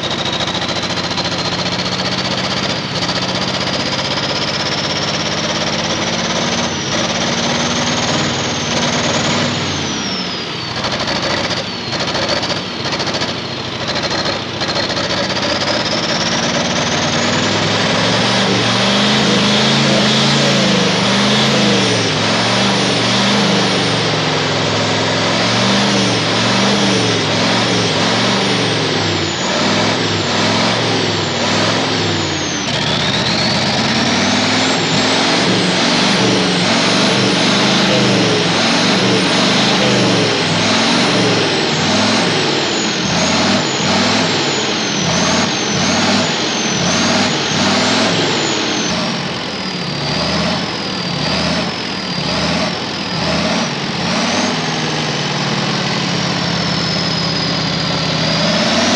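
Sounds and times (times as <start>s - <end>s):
turbocharged engine revving: 0.0s - 58.9s.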